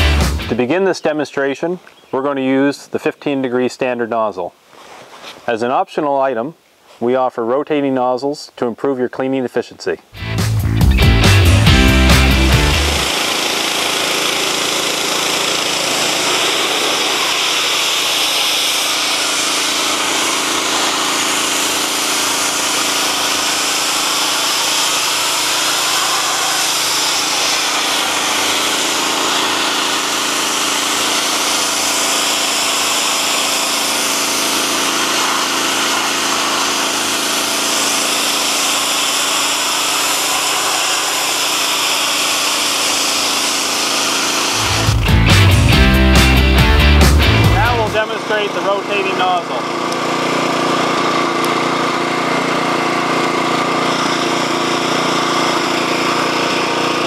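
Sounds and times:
gasoline engine running: 10.2 - 38.8, 44.0 - 57.0
pressure washer jet hissing: 11.1 - 57.0.

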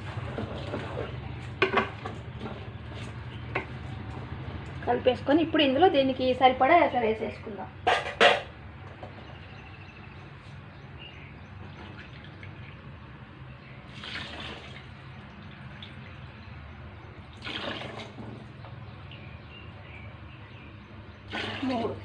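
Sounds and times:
water splashing into pot: 13.9 - 16.5, 17.3 - 18.4, 21.2 - 22.0.

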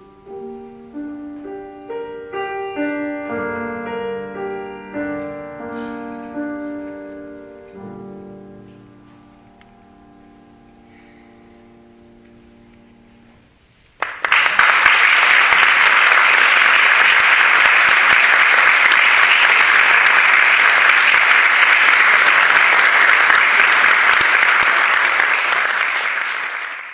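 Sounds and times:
audience applauding: 14.0 - 26.9.

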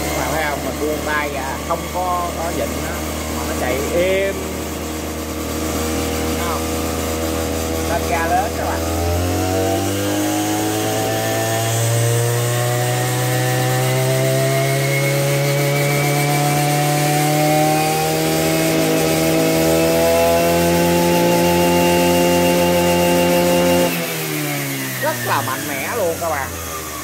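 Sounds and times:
brush cutter engine at full throttle: 0.0 - 27.0.

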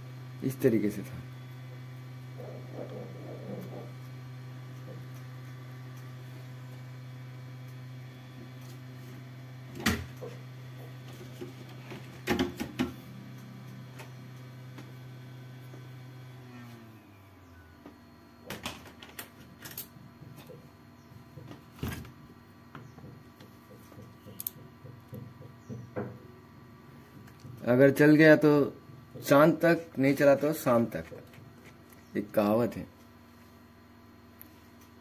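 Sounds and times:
low electrical hum: 0.0 - 35.0
clicks and taps of tools: 22.7 - 26.2.

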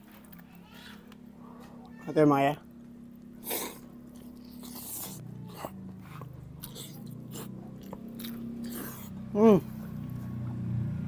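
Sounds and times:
crunching and chewing: 0.0 - 10.6
biting crispy chicken: 3.1 - 9.2.

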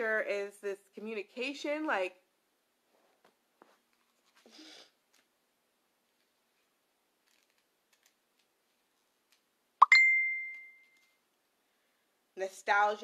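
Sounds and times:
electronic notification chime: 9.8 - 10.8.

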